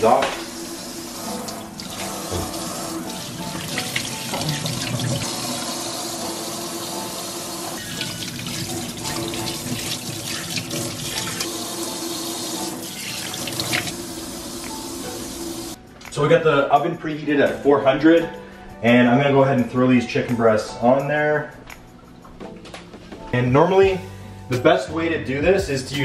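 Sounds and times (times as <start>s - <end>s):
background music: 0.0s - 26.0s
faucet spraying into steel sink: 0.1s - 15.8s.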